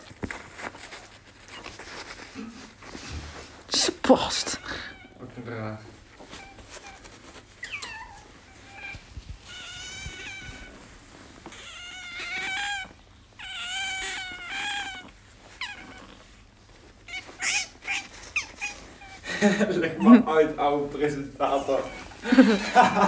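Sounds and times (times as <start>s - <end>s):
sharp squeaks: 7.6s - 8.2s.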